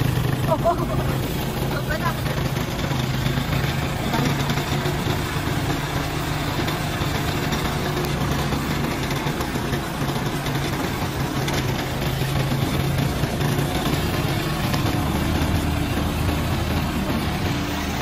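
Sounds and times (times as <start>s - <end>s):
hand tractor engine running: 0.0s - 18.0s.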